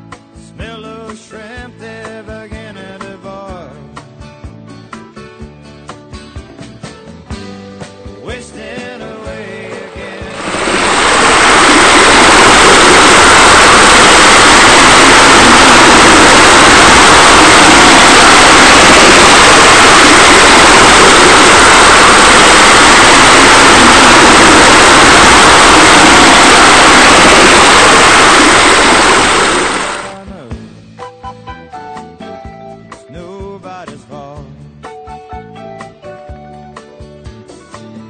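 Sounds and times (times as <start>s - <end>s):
loud steady rushing noise: 9.8s - 30.2s.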